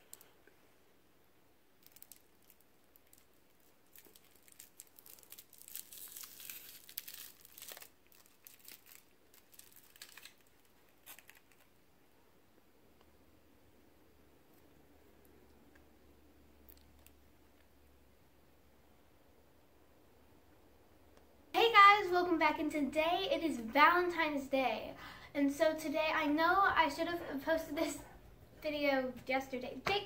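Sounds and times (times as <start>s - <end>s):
foil wrapper crinkling: 1.8s - 11.7s.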